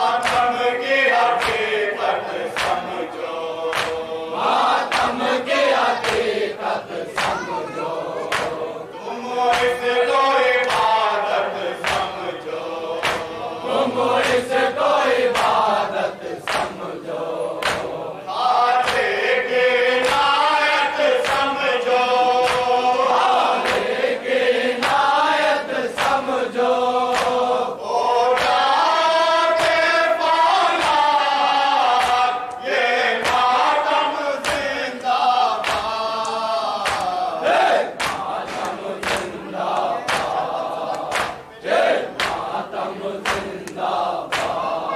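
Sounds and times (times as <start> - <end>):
men chanting in chorus: 0.0 - 44.9.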